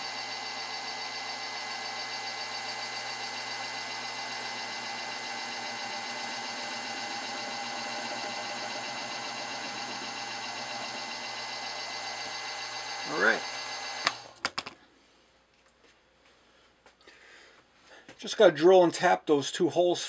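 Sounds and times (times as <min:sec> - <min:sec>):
milling machine humming: 0:00.0 - 0:14.4.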